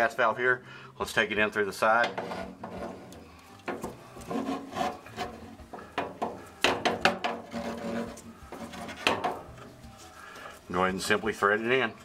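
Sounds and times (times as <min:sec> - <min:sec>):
metal pipe scraping sheet metal: 0:01.9 - 0:10.1.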